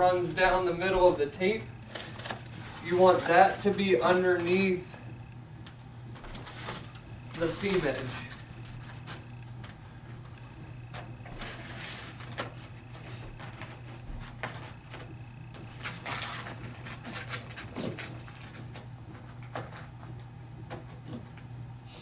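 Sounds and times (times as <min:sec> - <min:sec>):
rustling and scraping of carpet tape: 0:06.2 - 0:09.8, 0:11.0 - 0:20.1.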